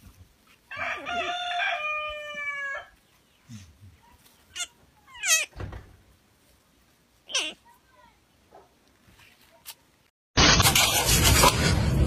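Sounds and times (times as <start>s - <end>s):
rooster crowing: 0.7s - 3.0s.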